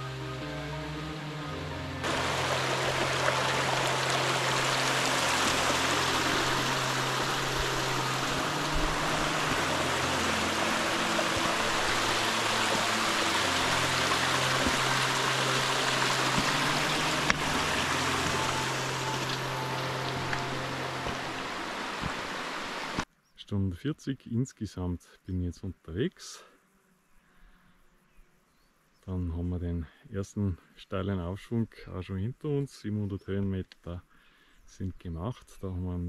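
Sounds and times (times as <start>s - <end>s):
mountain stream rushing: 2.0s - 23.0s.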